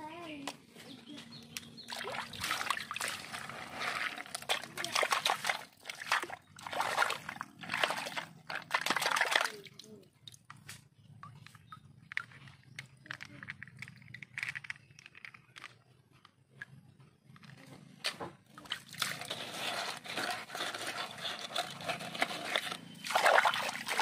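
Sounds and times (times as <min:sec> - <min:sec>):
muddy water sloshing and splashing: 0:01.7 - 0:10.8, 0:18.2 - 0:24.0.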